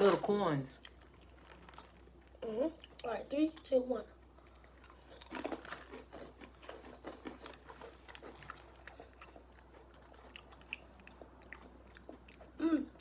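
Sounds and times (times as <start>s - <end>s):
plastic snack bag crinkling: 0.0s - 2.4s.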